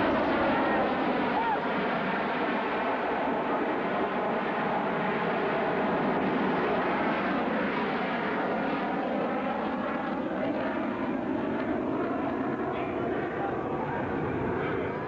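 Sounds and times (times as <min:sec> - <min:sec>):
jet fighter afterburner roar: 0:00.0 - 0:07.5.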